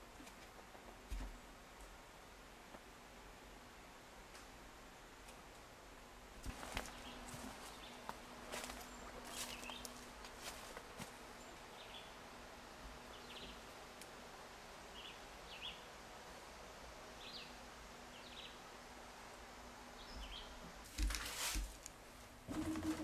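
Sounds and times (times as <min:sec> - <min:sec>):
woodland background hiss: 0:00.0 - 0:23.0
small birds chirping: 0:06.6 - 0:12.2, 0:13.0 - 0:13.7, 0:14.9 - 0:16.0, 0:17.2 - 0:18.6, 0:19.9 - 0:20.6.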